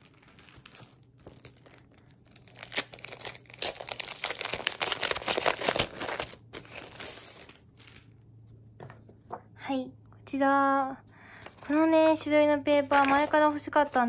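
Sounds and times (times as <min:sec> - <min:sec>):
plastic sleeve crinkling: 0:00.0 - 0:08.2.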